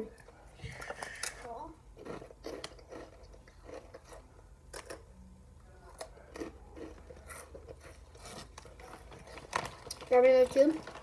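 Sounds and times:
chips crunching: 2.0 - 5.0, 5.9 - 11.0.

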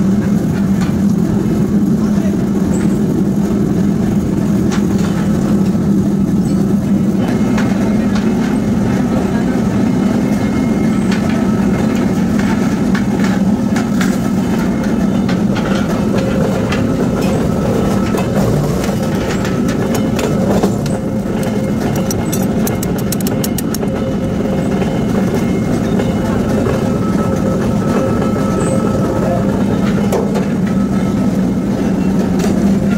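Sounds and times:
machinery droning: 0.0 - 32.9
quick ticks: 21.4 - 23.9.

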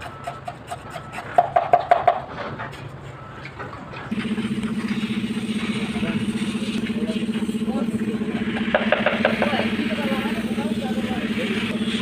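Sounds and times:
pulsing engine-like hum: 0.0 - 12.0
ringing metal knocks: 1.2 - 2.8.

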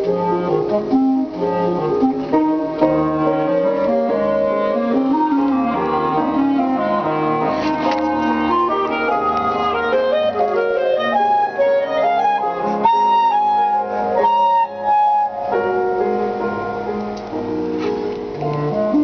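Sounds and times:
clarinet melody: 0.0 - 19.0.

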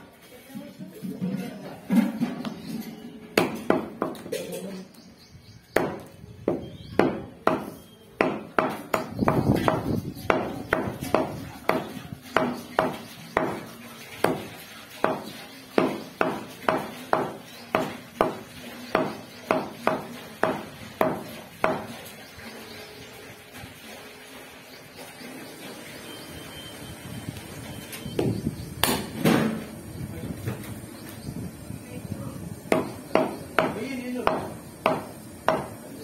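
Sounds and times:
cleaver chopping meat on wood: 3.4 - 4.3, 5.7 - 22.0, 28.8 - 29.2, 32.7 - 35.8.

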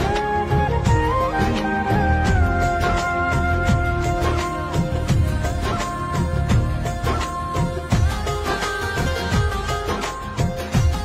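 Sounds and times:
steady drum beat: 2.3 - 11.0.

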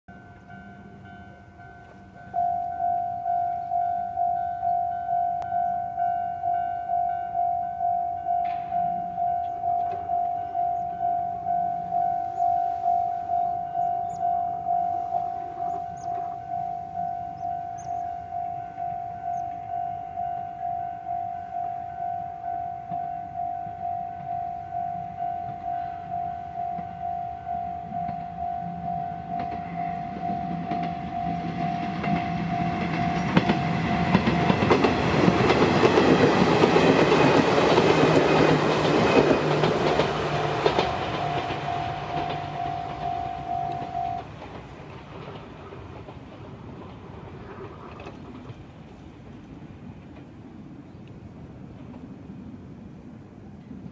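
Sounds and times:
level-crossing warning bell: 0.1 - 44.8
train wheels clattering on rail joints: 8.4 - 10.9, 27.8 - 50.5.

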